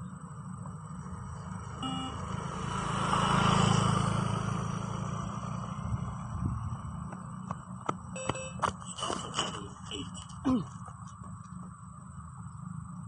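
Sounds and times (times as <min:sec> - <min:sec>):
vehicle passing: 0:00.7 - 0:12.2
electronic beep: 0:01.8 - 0:02.3, 0:08.2 - 0:09.5.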